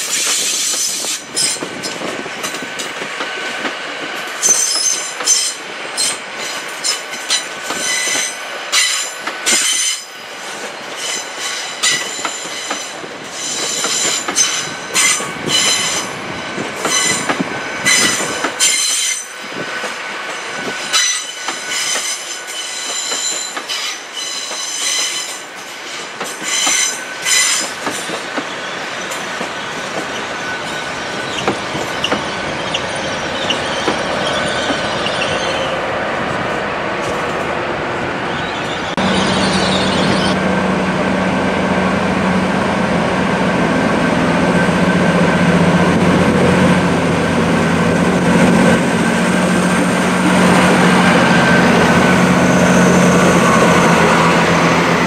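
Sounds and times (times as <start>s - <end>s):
train wheels squealing on track: 0.0s - 3.1s, 4.3s - 35.9s, 38.2s - 40.4s, 48.0s - 55.0s
train running noise: 0.0s - 55.0s.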